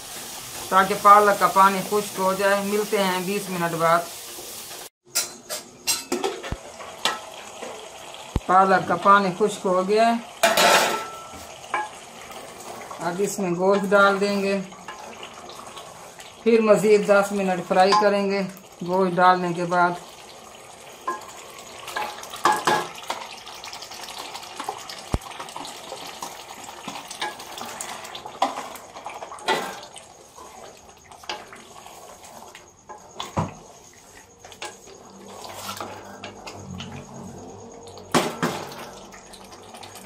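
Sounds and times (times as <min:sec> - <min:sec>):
food sizzling: 0:00.0 - 0:40.0
wooden spatula scraping metal pot: 0:26.9 - 0:36.6.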